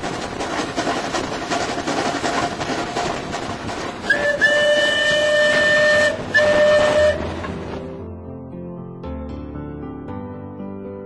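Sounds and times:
locomotive running on track: 0.0 - 8.0
steam whistle blasts: 4.1 - 7.4.

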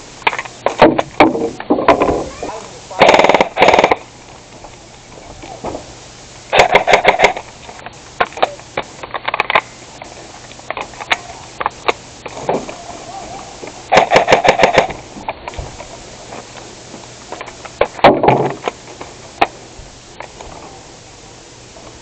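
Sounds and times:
toy gun rapid fire: 3.0 - 4.0, 6.5 - 7.4, 13.9 - 15.0.

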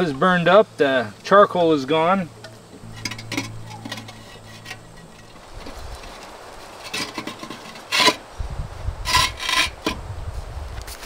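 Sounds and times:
ceramic parts scraping together: 2.8 - 8.3, 9.0 - 10.0.

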